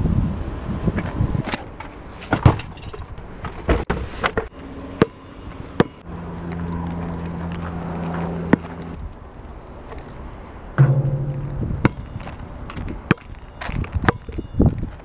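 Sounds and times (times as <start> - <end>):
steady low hum: 10.8 - 12.9.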